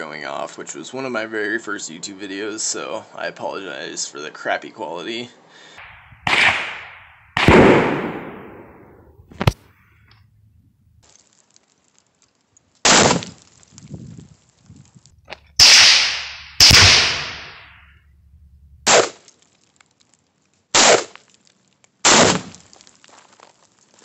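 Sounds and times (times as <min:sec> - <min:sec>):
exploding target detonations: 0:05.8 - 0:09.5, 0:15.5 - 0:19.1
rifle shots: 0:05.8 - 0:09.6, 0:15.6 - 0:19.2, 0:22.1 - 0:22.5.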